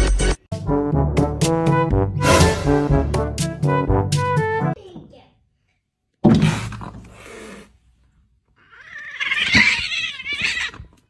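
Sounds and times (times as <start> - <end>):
loud cat cry: 8.6 - 11.0
wavering cat yowl: 8.7 - 10.8.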